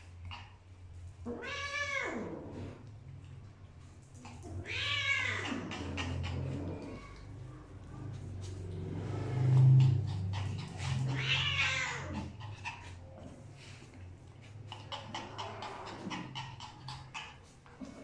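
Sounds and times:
cat growling moan: 0:01.2 - 0:02.9, 0:04.2 - 0:07.4, 0:09.0 - 0:13.4
cat yowling: 0:01.3 - 0:02.5, 0:04.5 - 0:07.3, 0:09.7 - 0:12.8.

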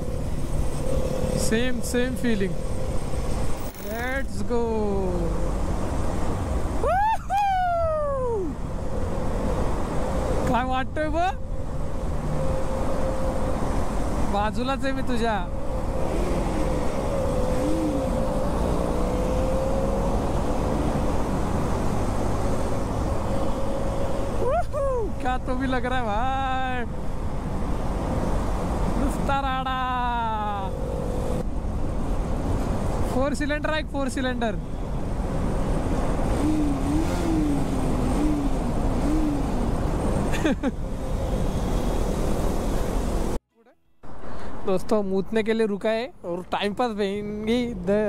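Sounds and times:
motorcycle engine drone: 0:00.0 - 0:06.9, 0:08.5 - 0:24.5
wind and road rush: 0:00.0 - 0:48.0.

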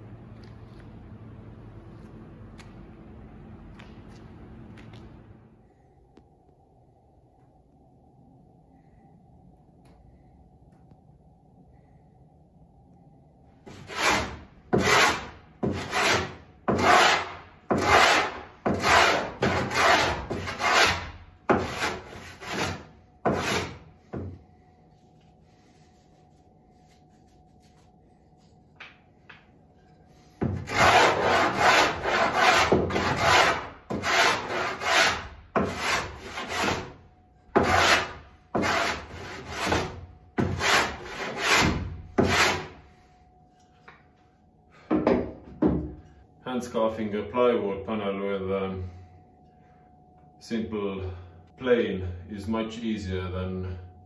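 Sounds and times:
hand plane rasping strokes: 0:13.7 - 0:23.8, 0:30.6 - 0:37.0, 0:37.6 - 0:42.8.

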